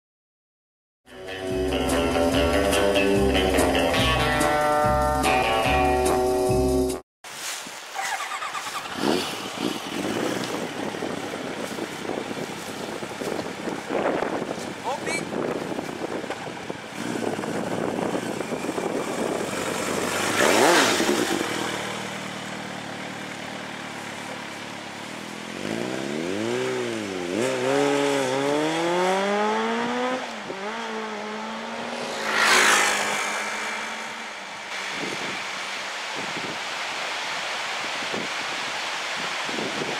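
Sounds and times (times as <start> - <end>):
motorcycle rushing past: 8.0 - 14.5, 16.8 - 36.6
motorcycle engine accelerating: 8.0 - 35.6.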